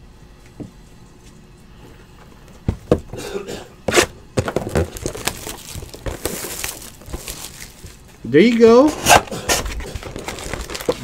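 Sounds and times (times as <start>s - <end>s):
card pack packaging tearing: 3.9s - 8.0s, 9.0s - 11.0s.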